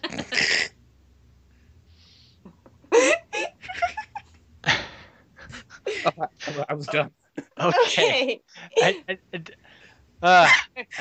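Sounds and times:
people laughing: 0:05.4 - 0:09.0.

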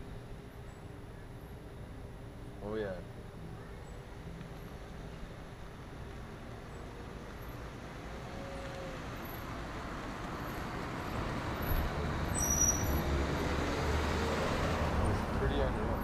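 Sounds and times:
vehicle approaching: 0:06.8 - 0:16.0.

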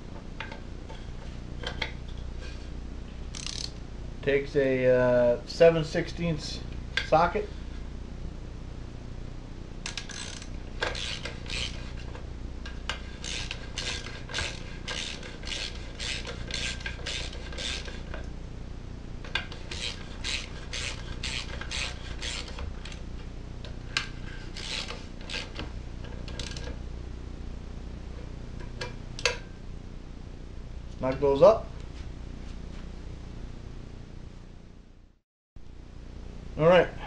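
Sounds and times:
ratchet wrench clicking: 0:03.3 - 0:03.8, 0:09.9 - 0:11.8, 0:13.2 - 0:17.9, 0:19.7 - 0:22.6, 0:24.6 - 0:25.6.

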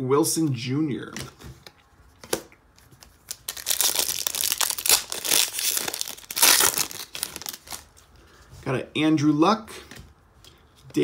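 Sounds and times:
foil wrapper crackling and crinkling: 0:03.2 - 0:08.0.

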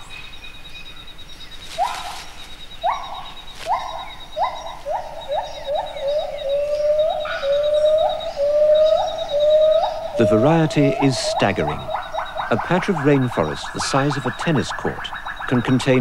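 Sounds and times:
high pulsing buzz: 0:01.5 - 0:16.0
gibbon whooping: 0:02.8 - 0:14.3.

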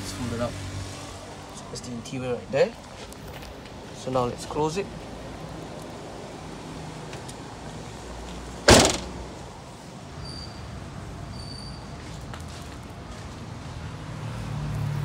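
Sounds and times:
car hatch slamming shut: 0:08.7 - 0:09.2.

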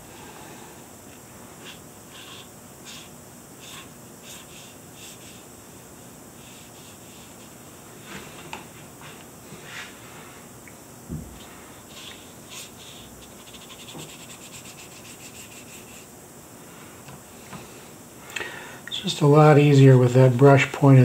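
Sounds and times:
faint steady hiss: 0:00.0 - 0:21.0
brush strokes on paper: 0:06.4 - 0:08.3, 0:11.4 - 0:16.1.

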